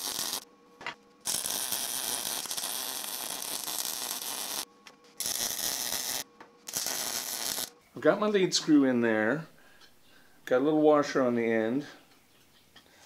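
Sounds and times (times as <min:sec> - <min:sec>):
welder arc crackling: 0:00.0 - 0:00.5, 0:01.2 - 0:07.8.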